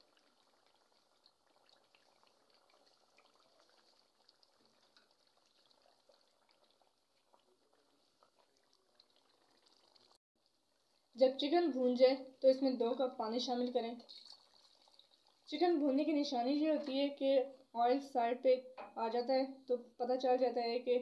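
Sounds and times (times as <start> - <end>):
chicken frying in oil: 0.0 - 10.2, 13.6 - 16.0.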